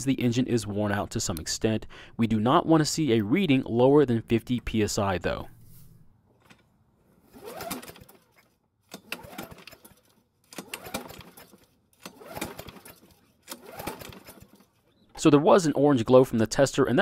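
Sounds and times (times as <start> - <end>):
mower starter rope pulled: 6.4 - 15.2
engine cranking: 7.3 - 15.2.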